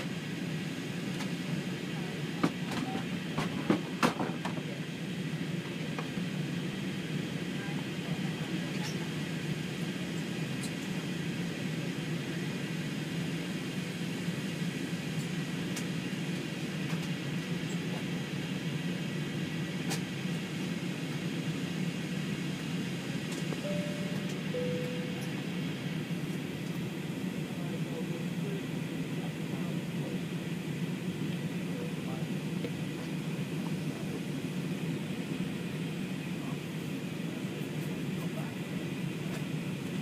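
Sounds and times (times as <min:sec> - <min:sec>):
jet engine cabin rumble: 0:00.0 - 0:40.0
falling two-note tone: 0:23.7 - 0:25.4.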